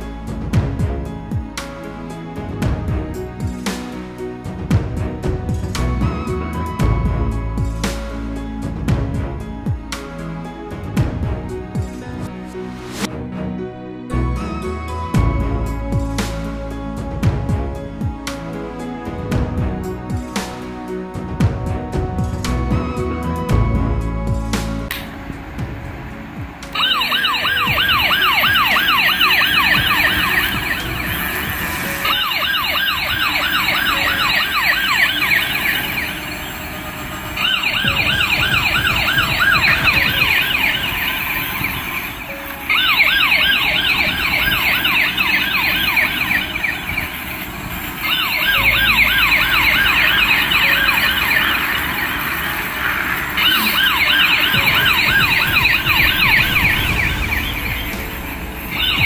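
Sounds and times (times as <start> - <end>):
toy electronic siren yelping: 26.7 - 59.0.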